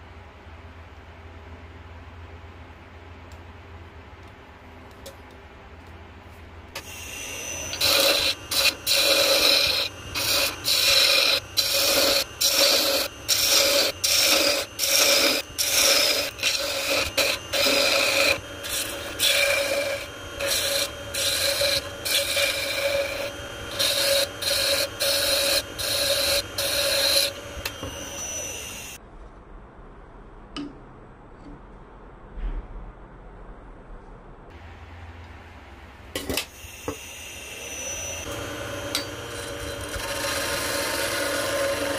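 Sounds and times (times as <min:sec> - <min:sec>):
spinning lathe tone: 0:06.8 - 0:29.0, 0:36.6 - 0:41.9
turning tool scraping wood: 0:06.8 - 0:29.0, 0:38.2 - 0:41.9.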